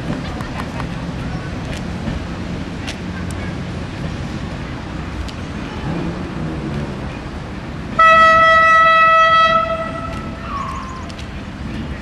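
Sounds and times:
railcar horn blast: 8.0s - 10.5s.

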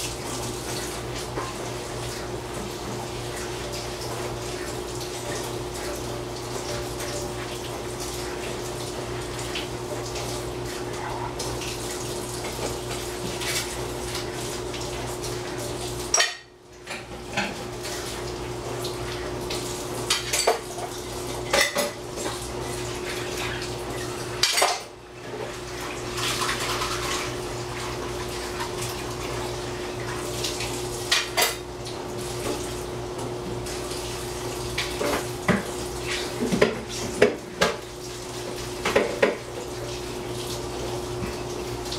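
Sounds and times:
dishes clinking during washing: 0.0s - 29.3s, 30.0s - 41.9s
water running: 0.0s - 41.9s
dishes clattering: 16.1s - 17.6s, 20.1s - 20.7s, 21.5s - 22.0s, 24.4s - 24.9s.

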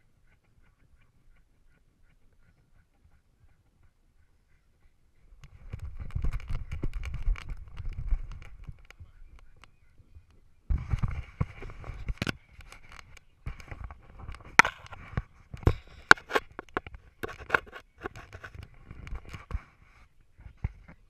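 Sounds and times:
fingers rubbing on camera housing: 5.4s - 8.9s, 10.7s - 21.0s
sharp clicks and knocks: 10.9s - 19.6s.

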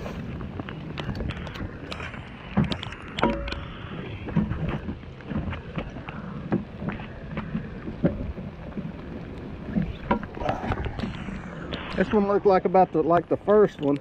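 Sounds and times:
wind buffeting microphone: 0.0s - 14.0s
sharp ticks and knocks: 0.6s - 9.0s, 9.7s - 11.8s
heavy rain: 9.0s - 13.0s.

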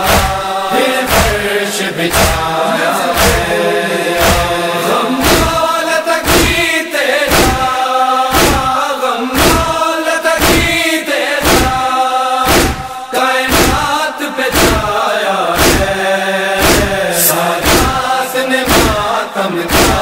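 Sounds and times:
chest-beating thumps: 0.0s - 1.5s, 2.1s - 3.6s, 4.2s - 6.7s, 7.3s - 8.8s, 9.4s - 9.7s, 10.4s - 10.8s, 11.4s - 11.8s, 12.4s - 15.0s, 15.6s - 16.0s, 16.6s - 18.1s, 18.7s - 19.1s, 19.7s - 20.0s
men chanting in unison: 0.0s - 20.0s.

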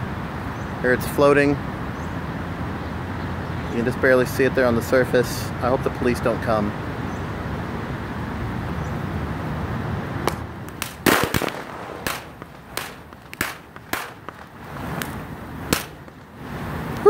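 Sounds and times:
sodium cracking and popping on water: 10.3s - 16.3s.

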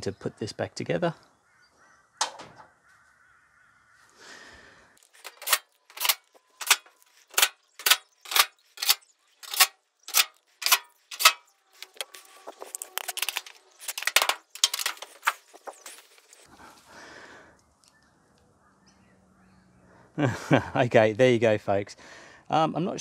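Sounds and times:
clicking and rattling: 5.1s - 16.1s
screwdriver strokes on sheet metal: 5.2s - 15.5s.

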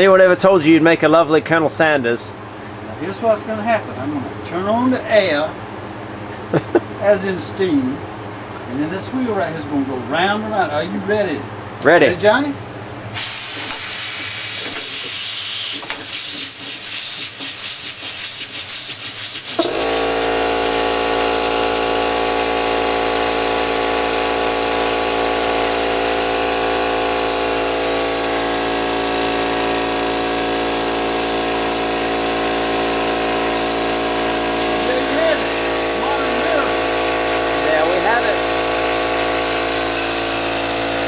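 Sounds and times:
motor hum with high whine: 0.0s - 16.0s, 19.6s - 41.0s
air hissing: 13.2s - 28.6s
steam engine exhaust chuffs: 19.6s - 41.0s.

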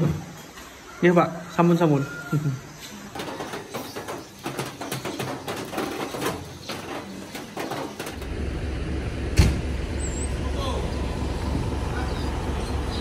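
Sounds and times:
engine rumble: 6.9s - 13.0s.

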